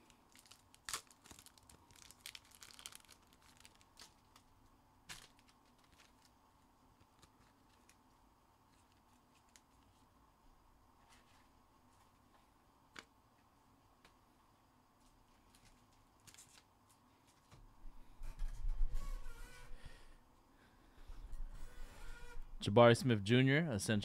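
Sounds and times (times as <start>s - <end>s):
wrappers crinkling and tearing: 0.0s - 6.4s.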